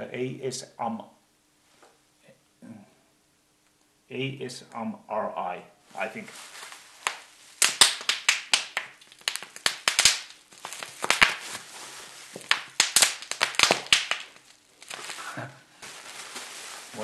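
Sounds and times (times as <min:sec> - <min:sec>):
bubble wrap popping: 0:06.3 - 0:17.0.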